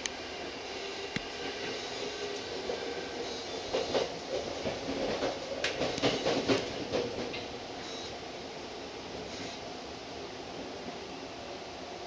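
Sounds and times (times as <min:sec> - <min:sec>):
train running hum: 0:00.0 - 0:12.0
wheels clacking over rails: 0:03.7 - 0:07.5.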